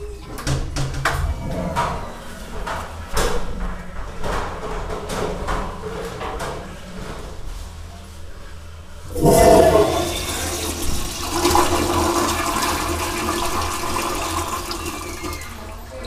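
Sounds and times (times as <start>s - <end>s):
toilet flushing: 9.0s - 16.0s.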